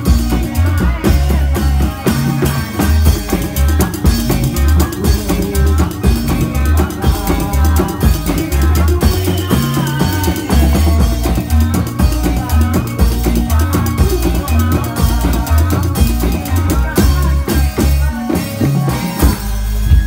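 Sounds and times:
driving drums with bass beat: 0:00.0 - 0:20.0
pitched melody line: 0:00.0 - 0:20.0.

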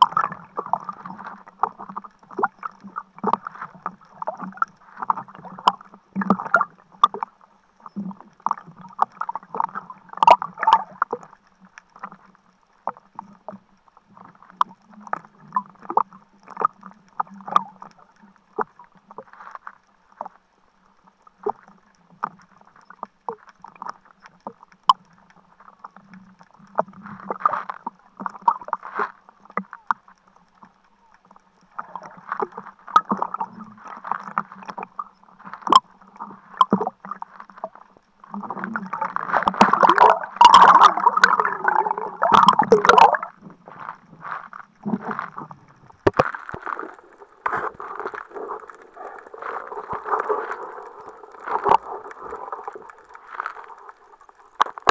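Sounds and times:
seawater splashing against camera: 0:26.8 - 0:54.9.

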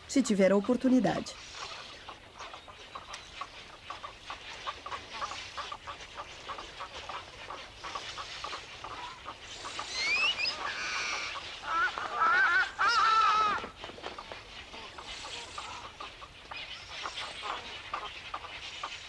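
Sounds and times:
waterbird colony calling: 0:00.0 - 0:19.0
rising whistled bird notes: 0:09.6 - 0:11.3.

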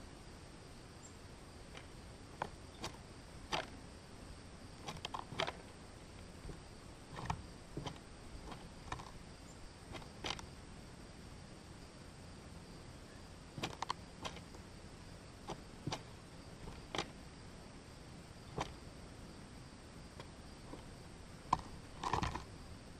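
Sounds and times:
faint outdoor hiss: 0:00.0 - 0:22.9
bird pecking seeds: 0:01.6 - 0:03.8, 0:04.7 - 0:10.6, 0:13.5 - 0:14.7, 0:15.3 - 0:17.2, 0:20.2 - 0:22.6.

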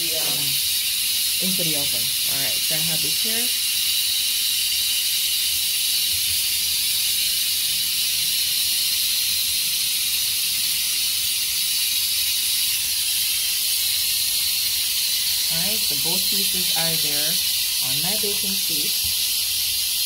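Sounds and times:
steady high hiss: 0:00.0 - 0:05.4, 0:07.2 - 0:20.0.

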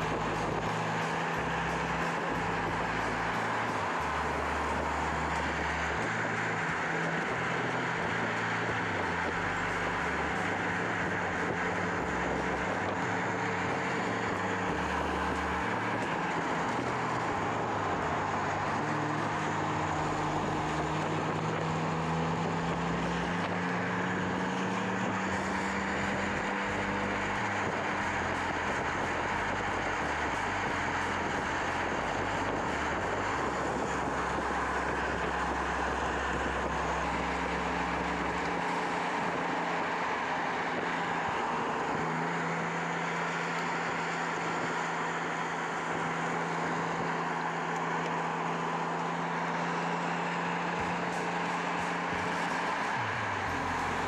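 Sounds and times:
car engine running at speed: 0:00.0 - 0:54.0.

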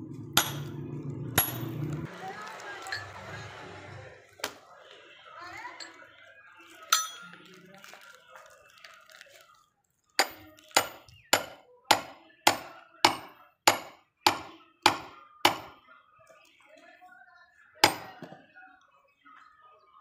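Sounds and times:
axe chopping firewood: 0:00.4 - 0:00.8, 0:10.2 - 0:15.8, 0:17.8 - 0:18.3.

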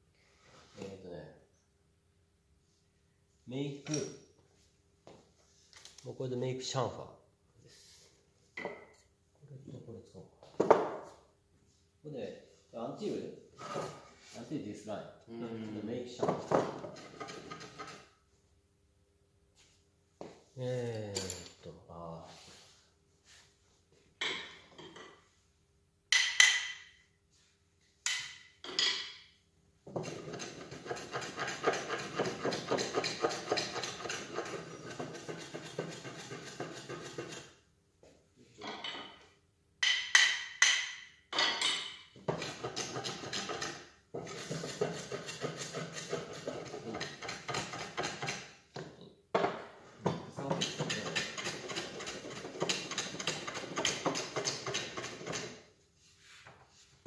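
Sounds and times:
hand tool scraping wood: 0:13.6 - 0:14.4, 0:16.6 - 0:18.2, 0:29.9 - 0:37.6, 0:42.2 - 0:48.6, 0:50.1 - 0:55.7.

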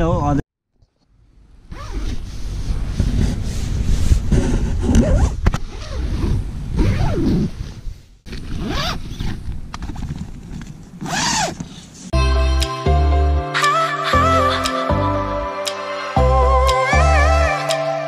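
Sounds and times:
zipper being pulled: 0:01.7 - 0:03.4, 0:04.1 - 0:10.3, 0:11.0 - 0:12.0
nylon fabric rustling: 0:01.7 - 0:12.0
background music: 0:12.2 - 0:18.0.

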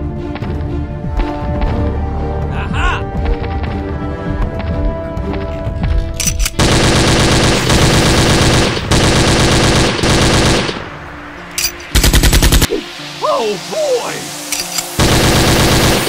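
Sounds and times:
machine-gun fire: 0:06.6 - 0:10.9, 0:11.9 - 0:12.7, 0:15.0 - 0:16.0.

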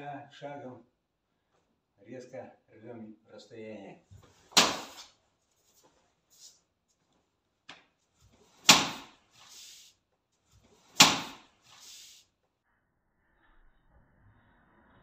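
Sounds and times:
punches slapping newspaper: 0:04.4 - 0:05.1, 0:08.4 - 0:09.8, 0:10.7 - 0:12.1.

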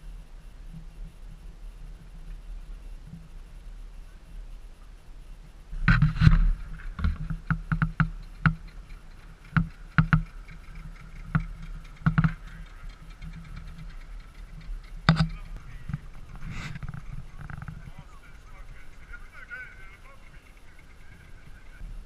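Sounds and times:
outboard motor running: 0:05.8 - 0:22.0
sharp knocks and slaps: 0:11.3 - 0:12.4.

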